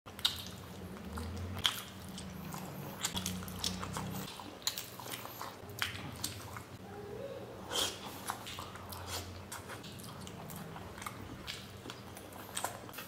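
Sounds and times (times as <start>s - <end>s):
person biting and chewing food: 0.1s - 6.7s.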